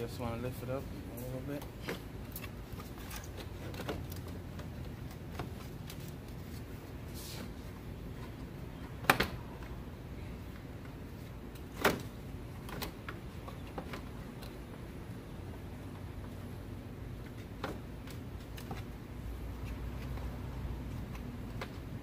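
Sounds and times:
low steady background noise: 0.0 - 22.0
tools and parts clicking and knocking: 1.5 - 6.4.

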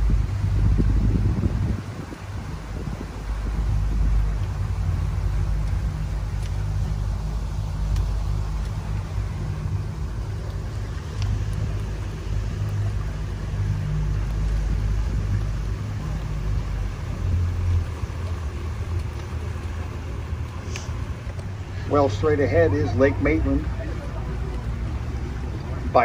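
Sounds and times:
boat motor drone: 0.0 - 26.0.

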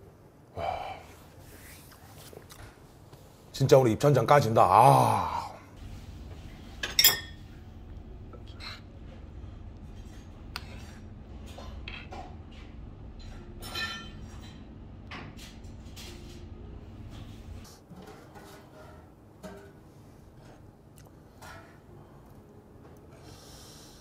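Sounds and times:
low background hum: 0.0 - 24.0
metal spoon clinking on pot: 6.8 - 7.4.

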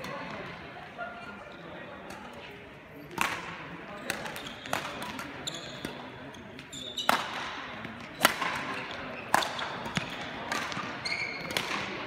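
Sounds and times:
shoe squeak on court floor: 4.0 - 7.3, 8.2 - 10.2, 11.0 - 11.6
badminton rackets striking shuttlecock: 7.1 - 8.7, 9.3 - 11.9.

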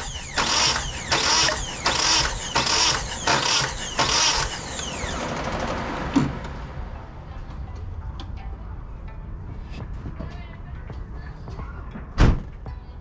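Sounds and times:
engine cranking on starter: 0.0 - 6.7.

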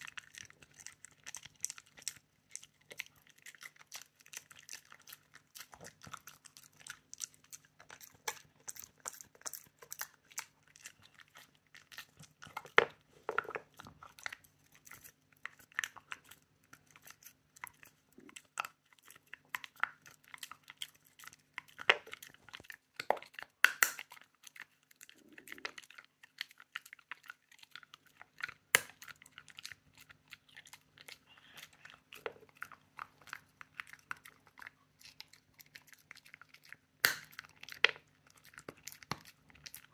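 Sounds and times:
dog chewing crunchy treat: 0.0 - 39.9.

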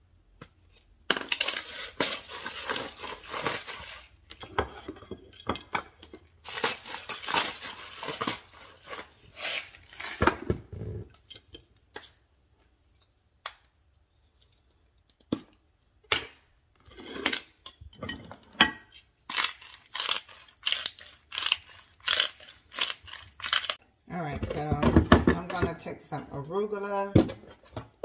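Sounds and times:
salt grinder crunching: 1.4 - 4.4, 6.4 - 10.2, 19.3 - 23.8.

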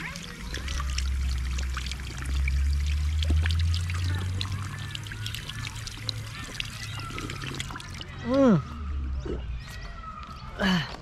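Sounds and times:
drinking fountain water running: 0.0 - 8.2.

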